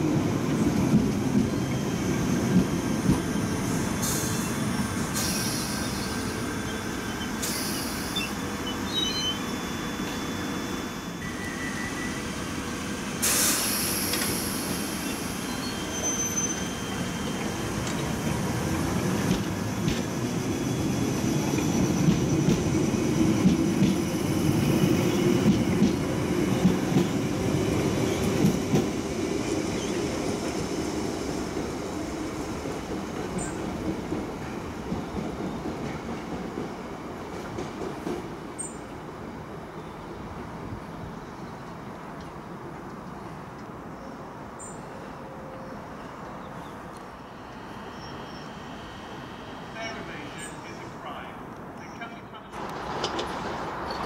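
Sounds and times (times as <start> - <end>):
train wheels rumbling on rail: 0.0 - 39.6, 46.7 - 54.0
high-pitched wheel squeals: 13.6 - 17.6.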